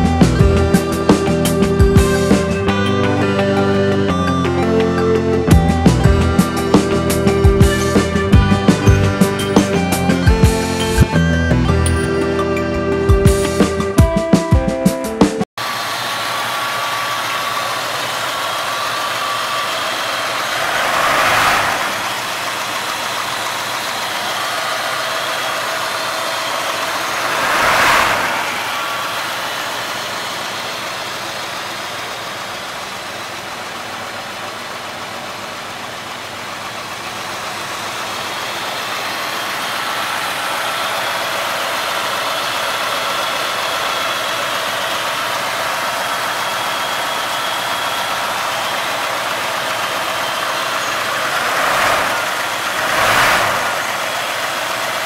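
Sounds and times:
car engine idling: 15.6 - 55.0.

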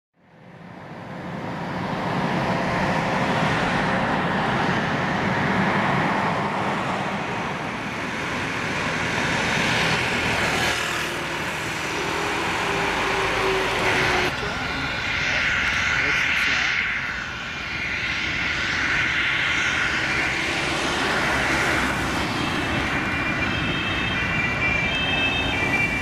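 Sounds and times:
aircraft engine rumble: 0.4 - 10.6, 11.2 - 26.0.

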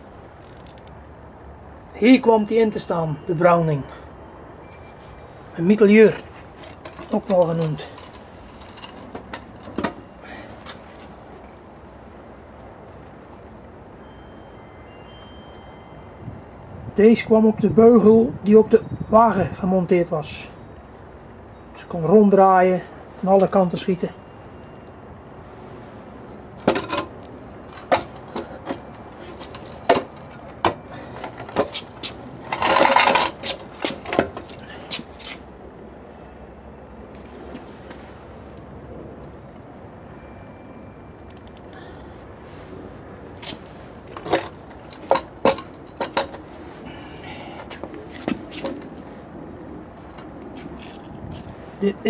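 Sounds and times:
metal scraping: 6.3 - 10.1, 26.6 - 35.4
metal knocks and clinks: 26.6 - 27.1, 27.7 - 34.6, 44.1 - 46.4.

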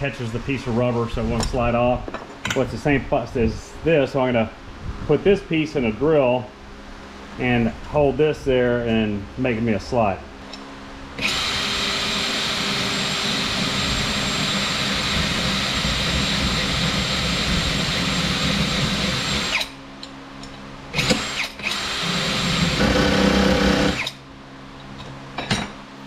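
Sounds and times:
cordless drill whining with grinding: 11.2 - 19.7, 21.0 - 24.2.

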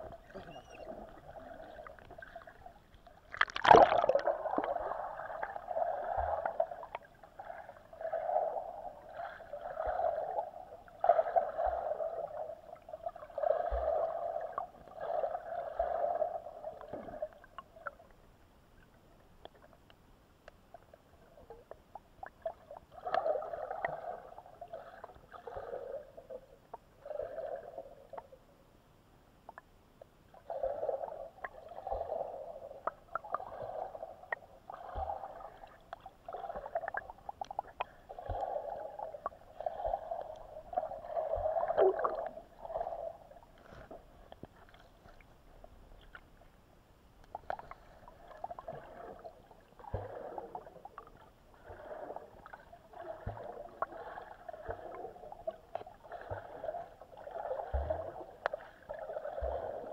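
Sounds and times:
muffled underwater swishing: 0.0 - 17.0.

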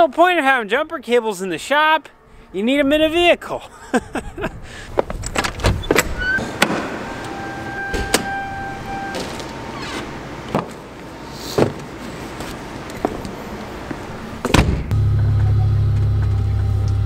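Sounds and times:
steady squeal: 5.8 - 10.2
metal door latch clicking: 7.9 - 8.4.

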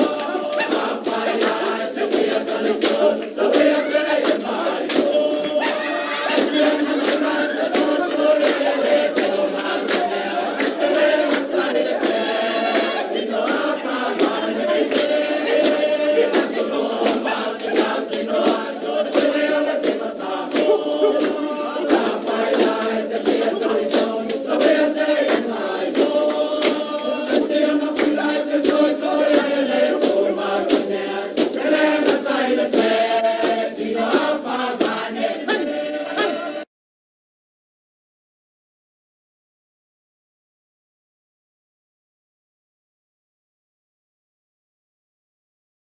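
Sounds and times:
sharp rhythmic beats: 0.0 - 36.6
choir chanting a song: 0.0 - 36.7.

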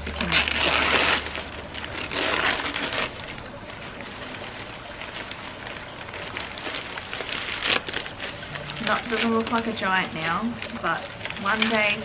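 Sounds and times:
packaging crackling rustle: 0.0 - 12.0.

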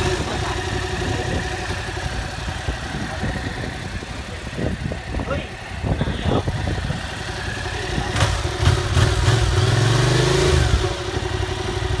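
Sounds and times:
motorcycle engine idling and revving: 0.0 - 12.0.

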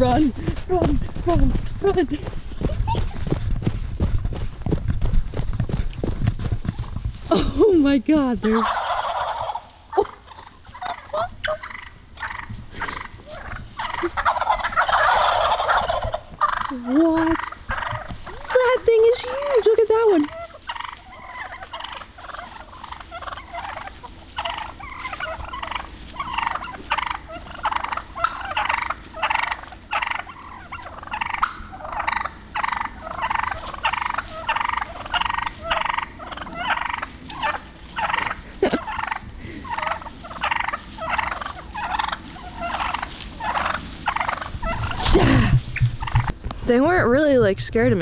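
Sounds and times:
wild turkeys calling: 6.7 - 48.0.

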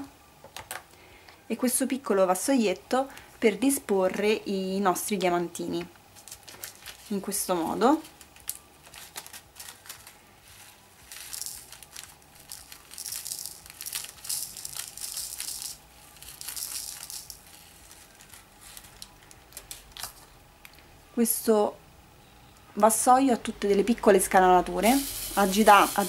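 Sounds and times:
tiny beads pattering into tray: 11.0 - 20.2.

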